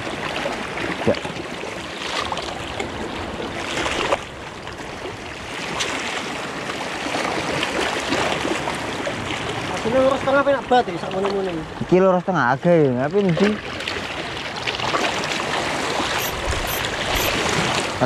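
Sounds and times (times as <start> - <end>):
waves splashing against rocks: 13.4 - 18.0.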